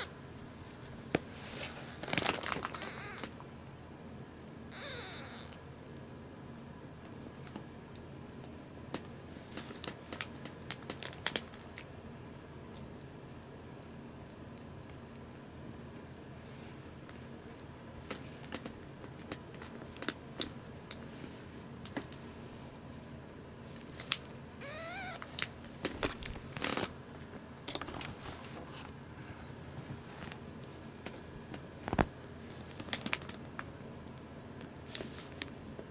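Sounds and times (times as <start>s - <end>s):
kitten mewing: 2.0s - 3.4s, 4.7s - 5.7s, 24.6s - 25.5s
kitten licking and suckling: 4.4s - 20.2s, 23.8s - 26.8s.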